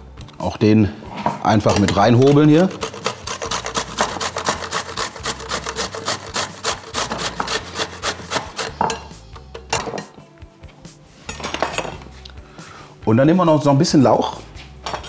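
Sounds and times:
grater rasping: 0:01.9 - 0:09.0.

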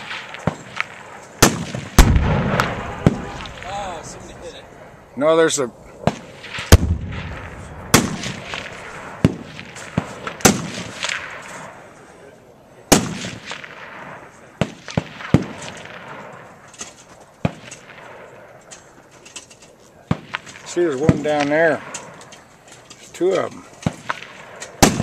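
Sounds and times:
gunshots with rumbling echo: 0:00.0 - 0:05.0, 0:06.0 - 0:12.0, 0:12.9 - 0:16.7, 0:17.4 - 0:18.6, 0:23.8 - 0:25.0.

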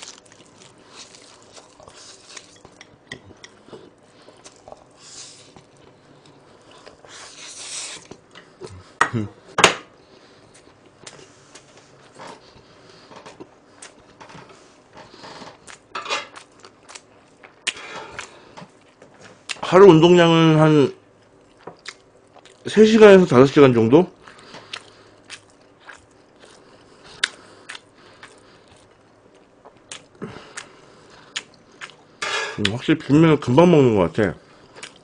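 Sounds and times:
chewing noodles: 0:00.0 - 0:08.8, 0:21.2 - 0:22.7, 0:24.2 - 0:32.0.

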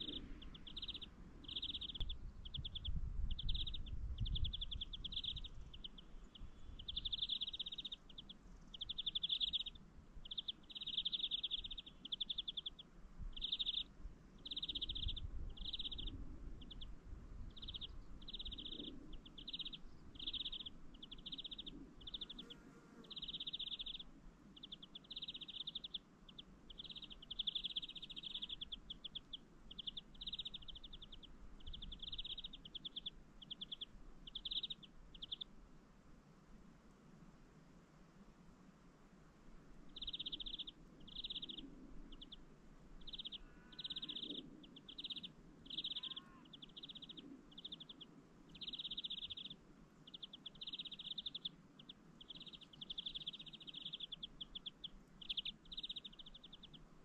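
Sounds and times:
small bird buzzy trills: 0:00.0 - 0:35.6, 0:39.9 - 0:57.0
faint low rumble: 0:00.0 - 0:57.0.

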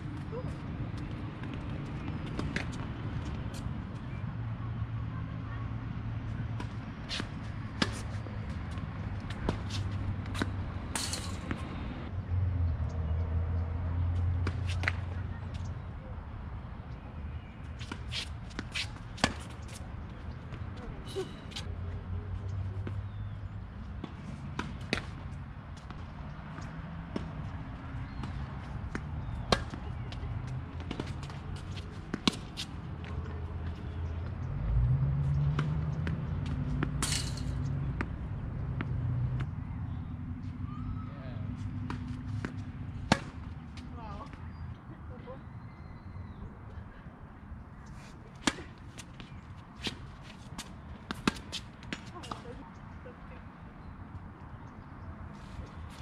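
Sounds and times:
footsteps on court: 0:06.6 - 0:10.6
tennis ball struck by rackets: 0:06.6 - 0:11.7, 0:14.4 - 0:15.1, 0:17.8 - 0:19.6, 0:28.1 - 0:29.9, 0:30.8 - 0:32.7, 0:36.4 - 0:38.1, 0:41.8 - 0:43.5, 0:48.4 - 0:52.4.

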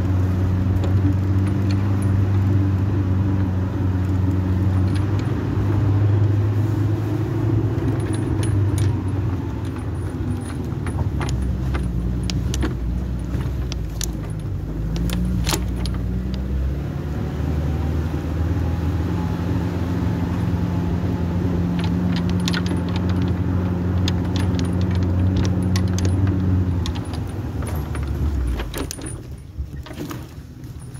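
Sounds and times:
loose metal parts rattling: 0:00.0 - 0:16.6, 0:20.0 - 0:30.9.

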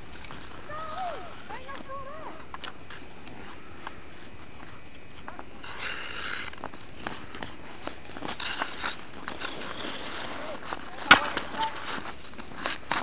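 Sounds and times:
skates scraping ice: 0:00.0 - 0:13.0
hockey sticks clacking on puck: 0:05.2 - 0:13.0.

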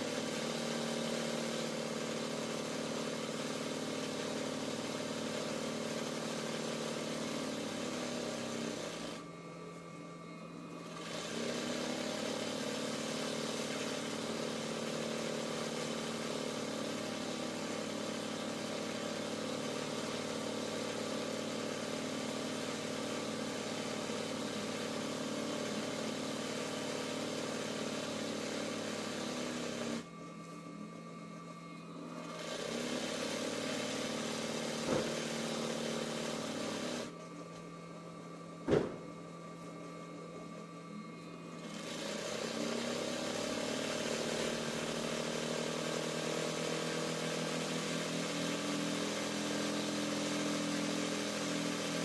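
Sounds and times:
sewing machine running: 0:00.0 - 0:09.3, 0:10.7 - 0:30.1, 0:32.0 - 0:37.2, 0:41.5 - 0:52.0
sharp knock: 0:38.7 - 0:39.1.

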